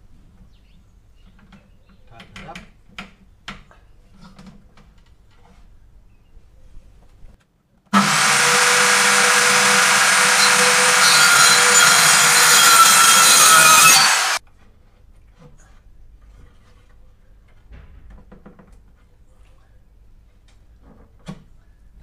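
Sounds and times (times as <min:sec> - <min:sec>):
circular saw cutting wood: 0:08.0 - 0:14.4.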